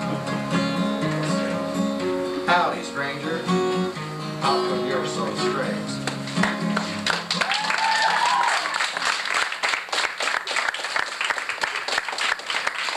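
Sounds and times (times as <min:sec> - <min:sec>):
acoustic guitar chord ringing: 0:00.0 - 0:07.2
people clapping: 0:01.0 - 0:01.5, 0:06.0 - 0:12.9.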